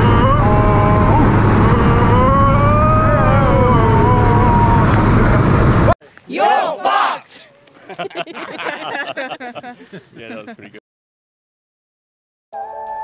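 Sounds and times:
airplane engine and propeller drone: 0:00.0 - 0:05.9
person shouting: 0:06.3 - 0:07.5.

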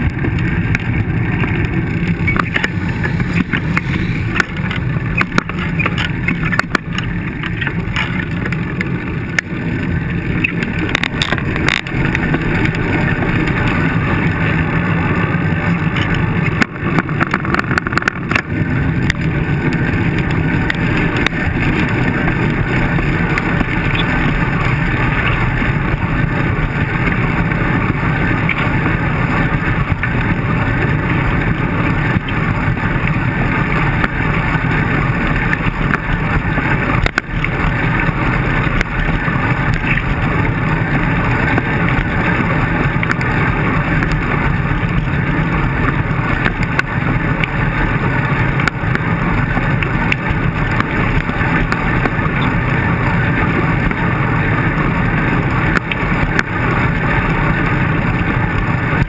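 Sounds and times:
bike knocks and rattles: 0:00.0 - 0:09.5, 0:15.8 - 0:27.3
road rumble: 0:00.0 - 0:59.0
wind rush: 0:00.0 - 0:59.0.

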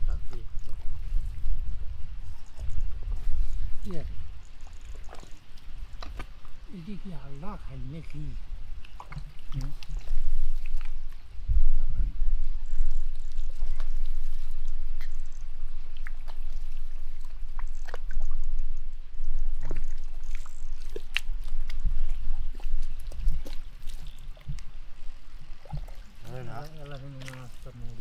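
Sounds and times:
small water splashes: 0:00.0 - 0:11.3, 0:12.6 - 0:28.0
steady low rumble: 0:00.0 - 0:28.0
hands squelching in wet mud: 0:07.8 - 0:11.3, 0:13.0 - 0:18.4, 0:19.5 - 0:28.0.

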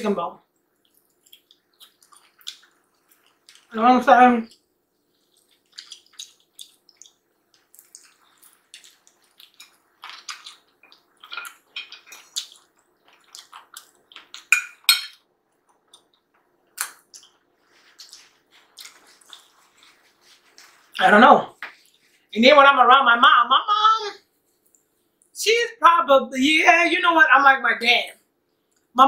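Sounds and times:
wet chewing and lip-smacking: 0:00.5 - 0:03.7, 0:04.5 - 0:14.9, 0:15.6 - 0:21.0.

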